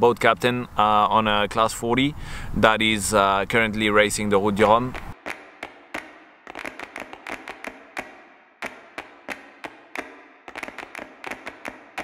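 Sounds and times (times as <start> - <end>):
percussive clicks at steady beat: 4.9 - 12.0.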